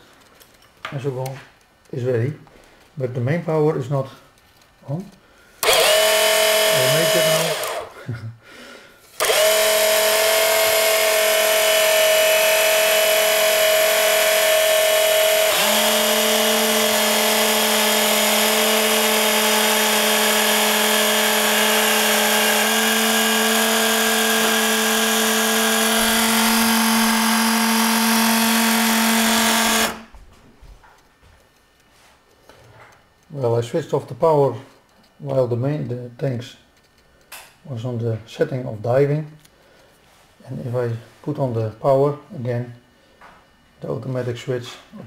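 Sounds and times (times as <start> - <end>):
small electric motor whining: 5.6 - 7.9, 9.2 - 30.1.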